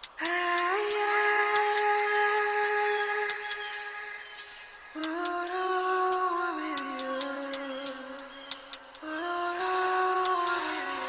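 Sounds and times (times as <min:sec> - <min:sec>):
light ticking percussion: 0:04.4 - 0:11.0.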